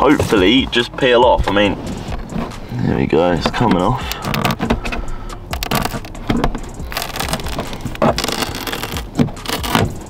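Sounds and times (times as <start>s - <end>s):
light strip peeling off: 5.5s - 10.0s.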